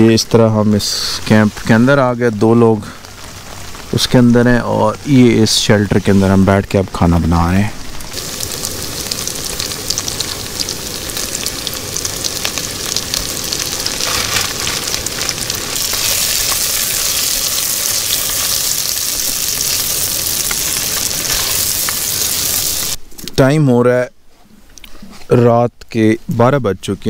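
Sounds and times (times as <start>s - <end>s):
vegetables sizzling in hot oil: 0.8s - 23.0s.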